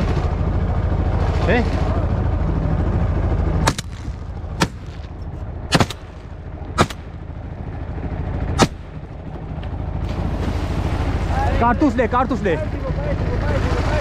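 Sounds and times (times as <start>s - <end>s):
low steady rumble: 0.0s - 14.0s
shotgun shots: 3.6s - 7.2s, 8.6s - 8.9s.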